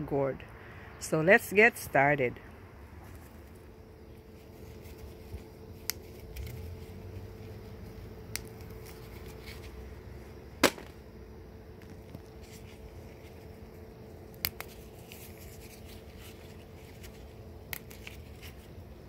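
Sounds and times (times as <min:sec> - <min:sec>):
bean pods snapping: 0:05.8 - 0:06.7, 0:08.2 - 0:09.6, 0:10.6 - 0:11.0, 0:14.3 - 0:18.6.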